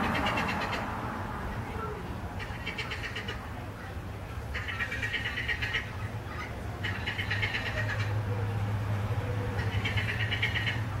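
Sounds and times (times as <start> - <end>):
parrots calling: 0.0 - 1.8, 2.4 - 3.5, 4.5 - 8.2, 9.4 - 11.0.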